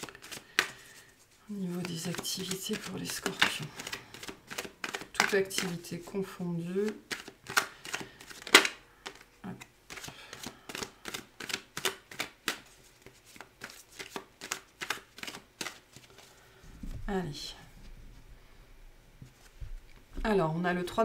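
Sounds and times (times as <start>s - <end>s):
cards shuffled by hand: 0.0s - 6.1s, 6.7s - 16.4s.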